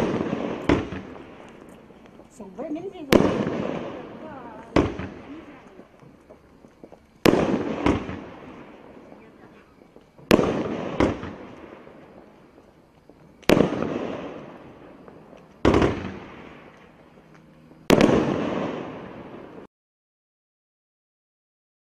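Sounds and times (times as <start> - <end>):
firework bangs: 0.0 - 19.7.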